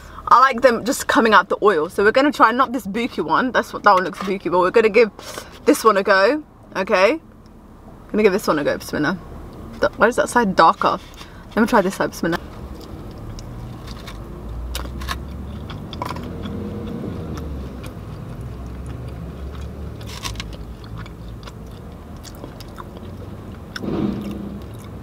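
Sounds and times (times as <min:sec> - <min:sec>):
low steady rumble: 0:00.0 - 0:25.0
crunchy chewing: 0:10.8 - 0:25.0.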